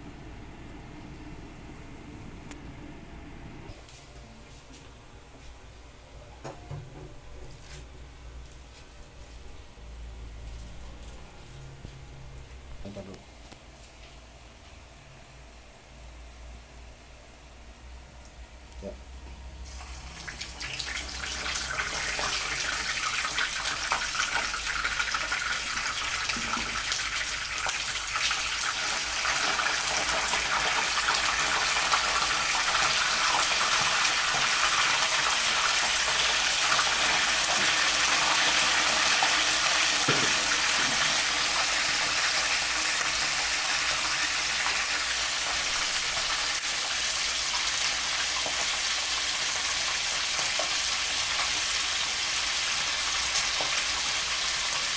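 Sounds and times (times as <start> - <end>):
meat sizzling in hot oil: 19.6 - 54.9.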